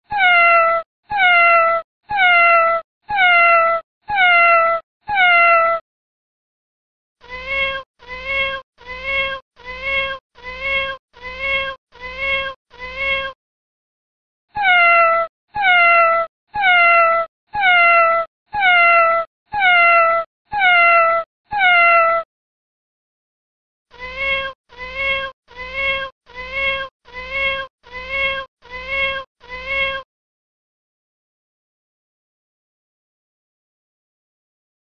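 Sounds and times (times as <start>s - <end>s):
cat meowing: 0.1s - 5.8s, 7.2s - 13.4s, 14.6s - 22.2s, 23.9s - 30.0s.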